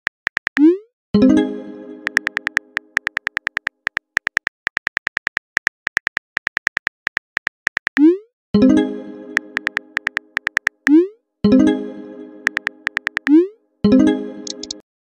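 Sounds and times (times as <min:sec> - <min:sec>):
phone keyboard clicks: 0:02.0 - 0:08.0, 0:09.6 - 0:10.9, 0:12.5 - 0:13.3, 0:14.4 - 0:14.8.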